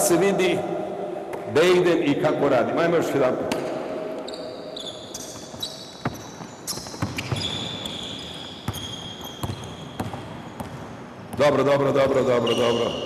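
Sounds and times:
sneakers squeaking on floor: 3.5 - 13.0
basketball bouncing on court: 5.1 - 12.9.

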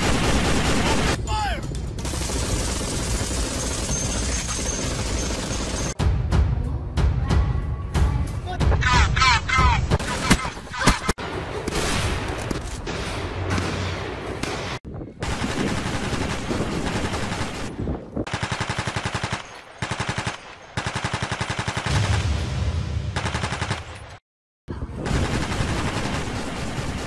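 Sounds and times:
automatic gunfire bursts: 2.0 - 6.0, 18.3 - 22.0, 23.2 - 23.9.

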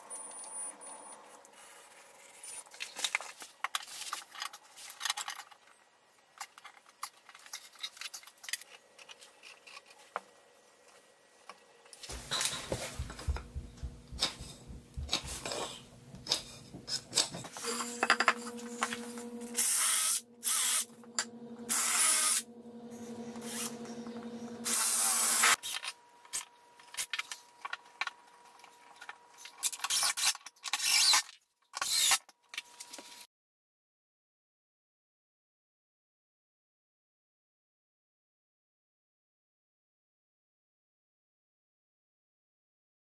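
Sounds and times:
knocks and scrapes: 12.0 - 19.6
low steady hum: 12.1 - 25.5.

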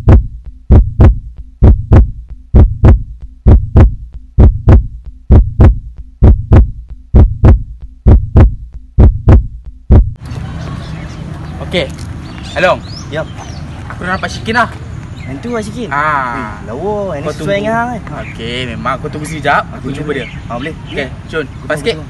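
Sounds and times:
heartbeat thumps: 0.0 - 10.2.

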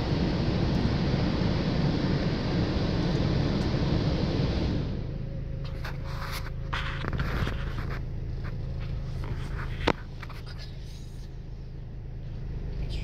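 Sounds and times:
faint whine: 0.0 - 13.0
low rumble: 0.0 - 13.0
car wash brushes scraping bodywork: 5.6 - 10.9.

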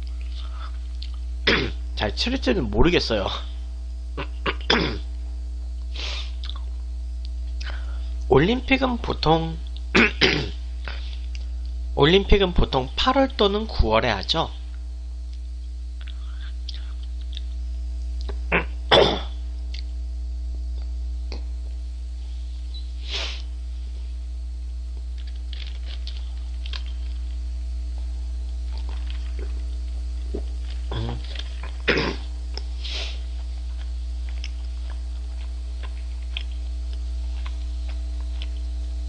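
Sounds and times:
person eating noisily: 0.0 - 1.8, 4.2 - 5.0, 5.8 - 8.2, 15.3 - 19.9, 25.0 - 39.0
low electrical hum: 0.0 - 39.0.

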